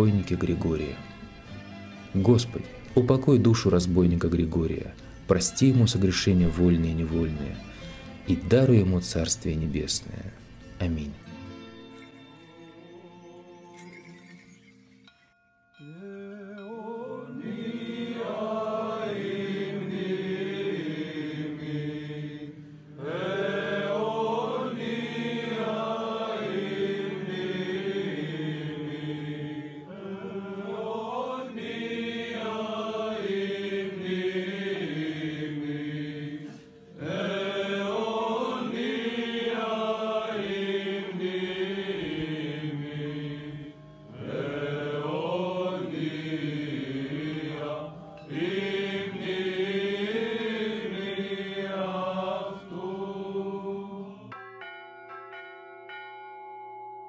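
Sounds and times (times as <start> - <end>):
voices chanting: 15.9 - 54.3.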